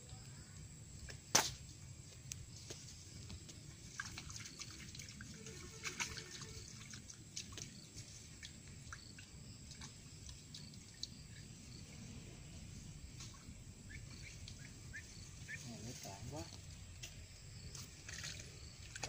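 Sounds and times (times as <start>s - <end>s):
water ticks and drips: 2.1s - 11.8s, 13.0s - 15.0s, 16.5s - 19.0s.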